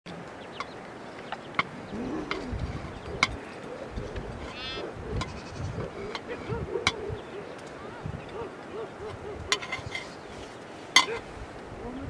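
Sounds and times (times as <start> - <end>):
goats bleating: 4.4 - 6.0.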